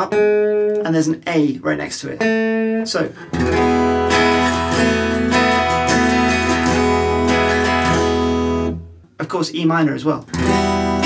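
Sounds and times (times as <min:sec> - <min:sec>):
electric guitar chords: 0:00.0 - 0:00.8, 0:02.2 - 0:09.0, 0:10.3 - 0:11.0.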